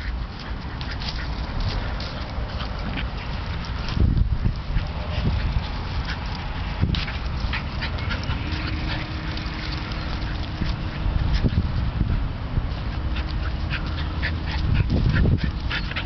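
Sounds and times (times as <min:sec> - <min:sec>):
constant low rumble: 0:00.0 - 0:16.0
dogs yapping and whining: 0:04.7 - 0:16.0.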